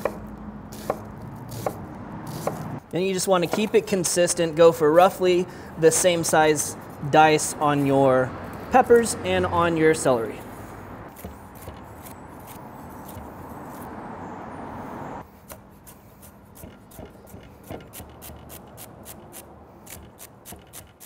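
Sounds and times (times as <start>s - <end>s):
knife chopping on wooden board: 0.0s - 2.8s, 3.4s - 3.8s, 11.1s - 13.8s, 16.6s - 18.7s.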